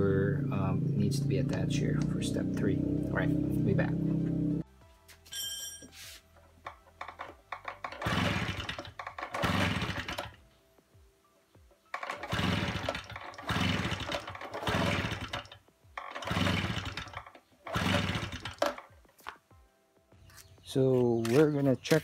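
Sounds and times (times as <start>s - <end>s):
recoil starter whirring: 7.1s - 10.4s, 11.9s - 18.9s.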